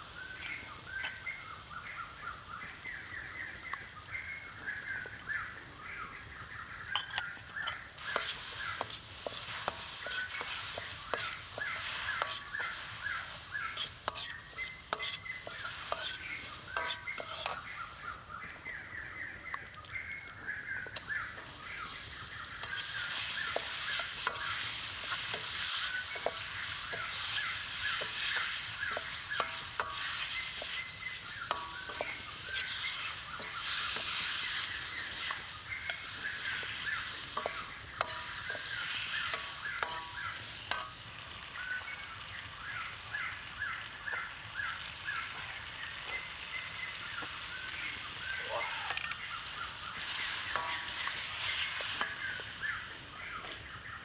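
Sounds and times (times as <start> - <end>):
food sizzling in a wok: 0.0 - 54.0
metal ladle scraping a wok: 7.0 - 17.7, 22.6 - 41.4, 50.0 - 52.6.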